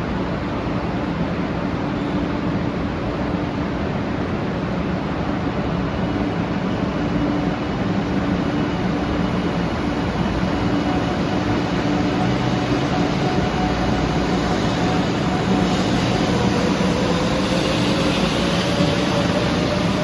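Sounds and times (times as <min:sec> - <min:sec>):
electric train pulling away: 0:06.1 - 0:20.0.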